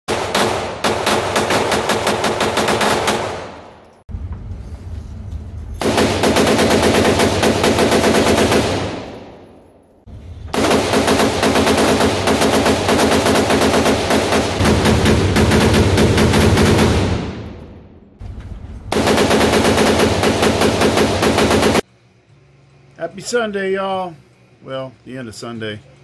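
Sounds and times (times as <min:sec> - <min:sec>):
rapid rifle fire: 0:00.1 - 0:03.6, 0:05.8 - 0:09.3, 0:10.4 - 0:17.6, 0:18.9 - 0:21.8.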